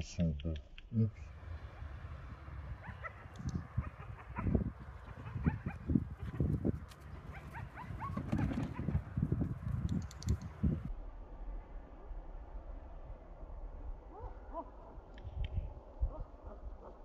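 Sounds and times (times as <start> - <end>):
dog yipping: 2.8 - 6.6, 7.3 - 9.0.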